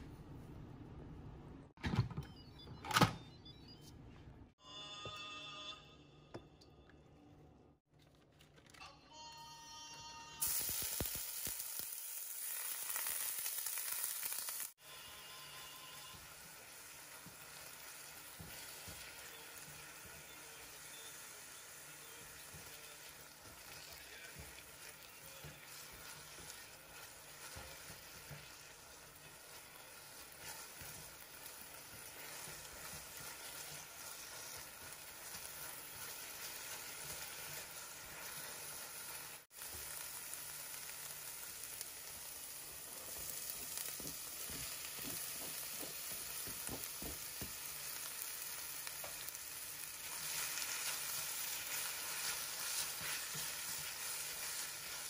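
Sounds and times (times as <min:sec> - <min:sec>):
onion sizzling in hot oil: 0:10.4 - 0:55.0
spatula stirring in pan: 0:14.9 - 0:41.3, 0:43.0 - 0:55.0.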